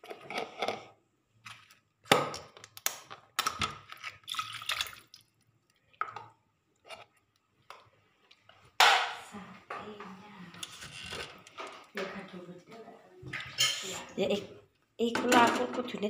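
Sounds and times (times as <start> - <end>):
liquid splashing and dripping: 3.8 - 5.5.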